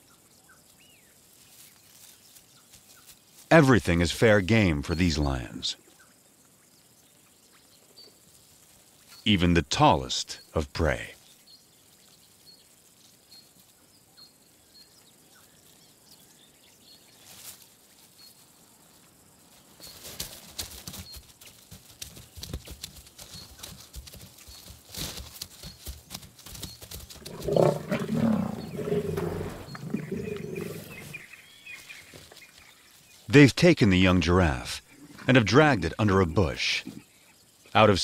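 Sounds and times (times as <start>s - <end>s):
small birds chirping: 0.0s - 3.5s, 4.2s - 38.0s
lionesses growling: 27.2s - 31.6s, 34.8s - 35.6s.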